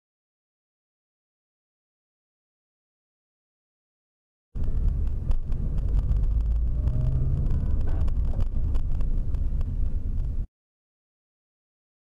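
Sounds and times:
car road and engine rumble: 4.6 - 10.5.

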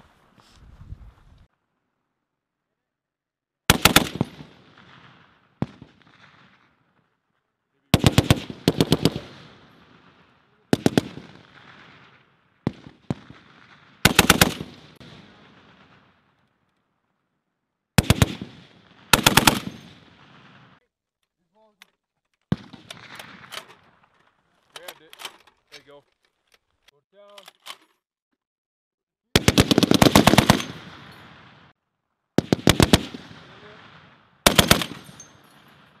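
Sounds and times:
heavy machine gun bursts: 34.5 - 35.2.

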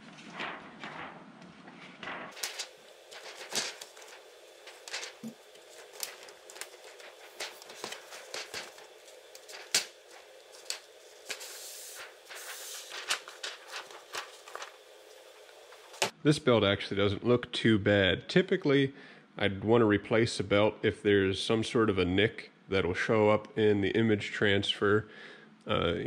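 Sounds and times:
sliding rustle: 0.0 - 16.0.

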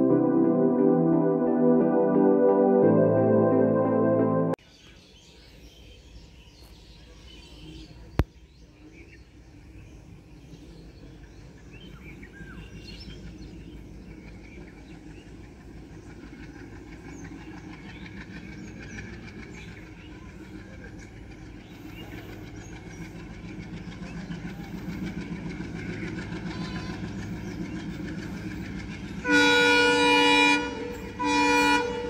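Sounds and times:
distant train rumble: 0.0 - 3.4, 9.2 - 32.0
birds chirping: 17.0 - 29.3.

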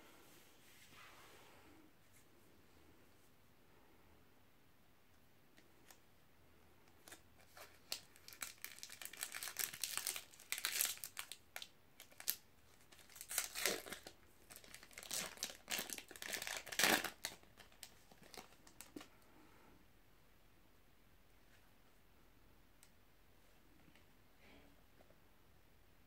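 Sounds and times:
foil wrapper tearing and crinkling: 7.1 - 18.8.

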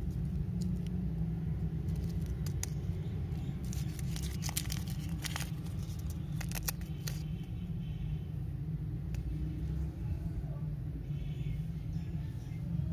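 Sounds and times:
candy wrapper crinkling and tearing: 0.0 - 7.3
steady low rumble: 0.0 - 7.6.

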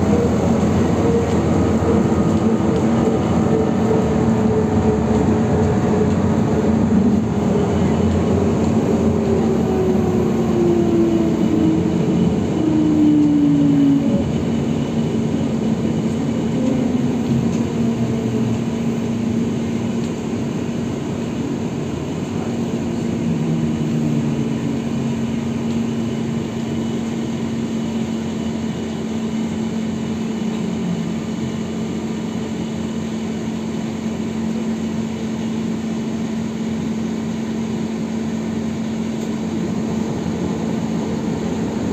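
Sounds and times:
traction motor whine: 0.0 - 19.6
road and rolling noise: 0.0 - 41.9.

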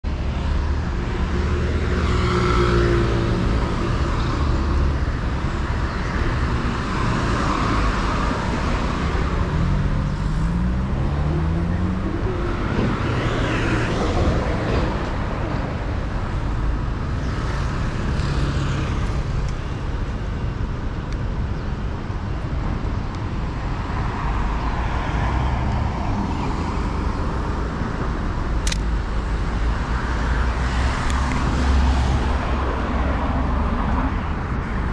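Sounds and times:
vehicles passing: 0.0 - 34.9
vehicle engine revving: 9.4 - 13.5
sharp click: 28.6 - 28.9.

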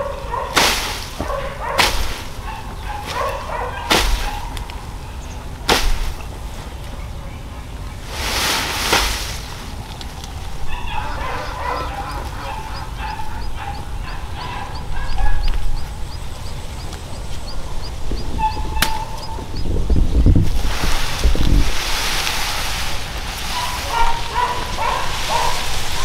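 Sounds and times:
poultry clucking: 0.0 - 5.6, 9.9 - 20.3, 23.3 - 26.0
wind rumble on microphone: 9.7 - 26.0
faint high chirp: 18.2 - 20.1.

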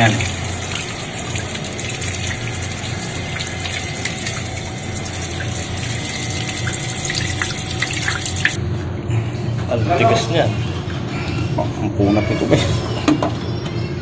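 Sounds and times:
tap water splashing on tiles: 0.0 - 8.6
toothbrush scrubbing a shell: 0.0 - 8.6.

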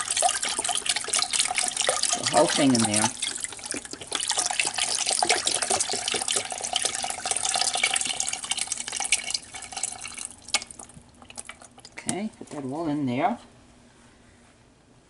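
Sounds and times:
stock pouring into a pot: 0.0 - 12.0.

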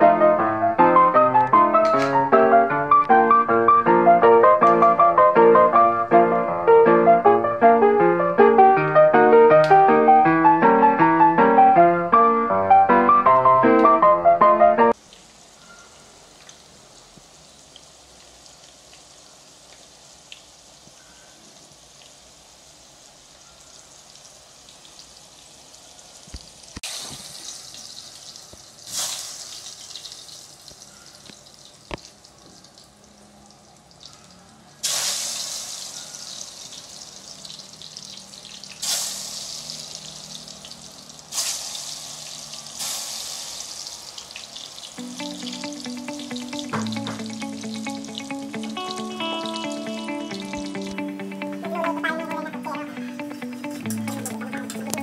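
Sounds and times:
food frying in hot oil: 14.9 - 51.0.

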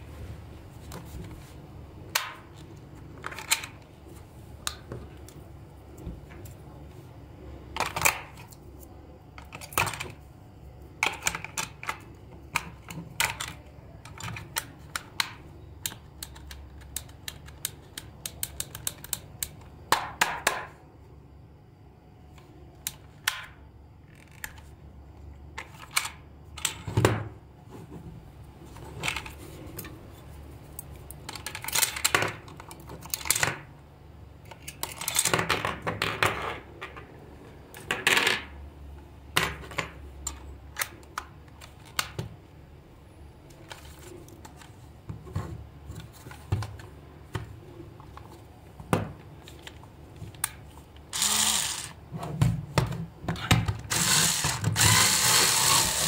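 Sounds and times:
plastic toy casing clicking: 50.4 - 52.0.

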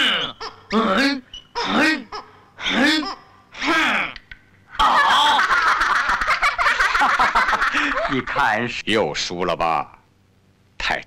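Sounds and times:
cartoon crowd laughing: 4.8 - 8.4.

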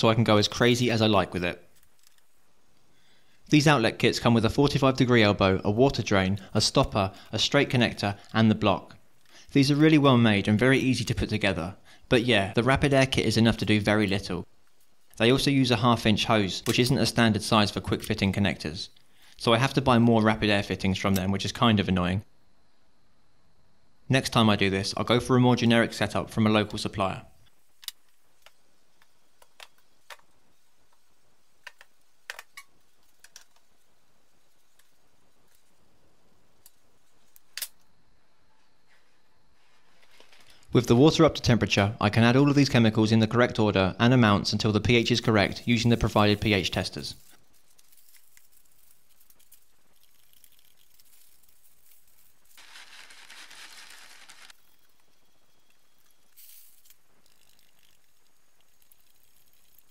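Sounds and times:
rustling hissing bursts: 45.2 - 55.0, 55.9 - 59.9.

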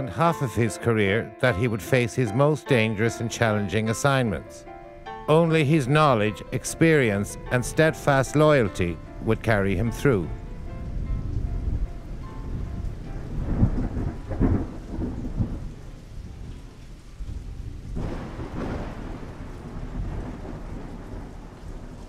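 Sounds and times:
steady low hiss: 0.0 - 22.0
deep rumbling with crackles: 9.1 - 22.0.

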